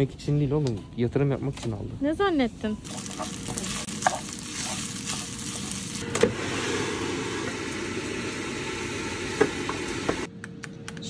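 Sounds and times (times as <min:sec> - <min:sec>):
food sizzling in hot oil: 0:02.8 - 0:10.3
wooden spoon scraping and tapping: 0:02.9 - 0:04.8.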